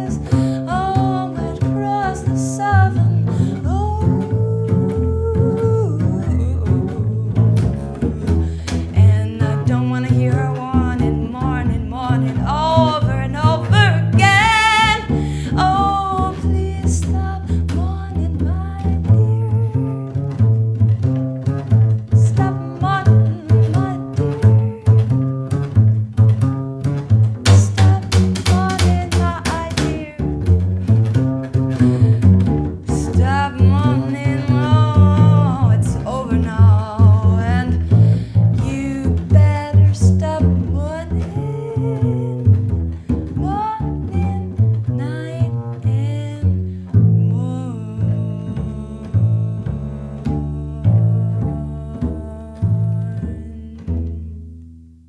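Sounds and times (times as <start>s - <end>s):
woman singing jazz-blues: 0.0s - 54.4s
plucked double bass: 0.0s - 55.0s.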